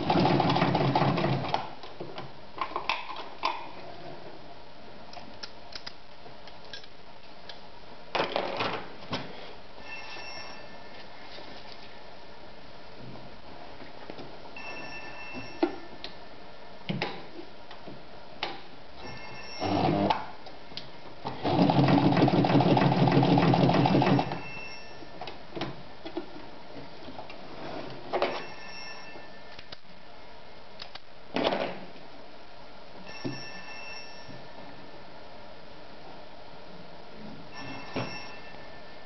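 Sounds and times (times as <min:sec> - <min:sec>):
sewing machine stitching: 0:21.4 - 0:24.4.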